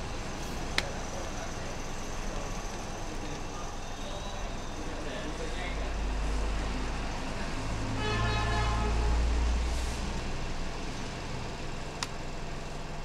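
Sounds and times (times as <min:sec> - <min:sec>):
vehicle horn: 0:08.0 - 0:09.4.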